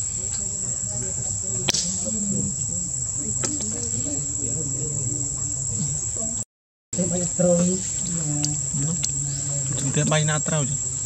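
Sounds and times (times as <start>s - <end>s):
insects calling: 0.0s - 6.4s, 7.0s - 11.0s
sharp click: 1.7s - 1.9s.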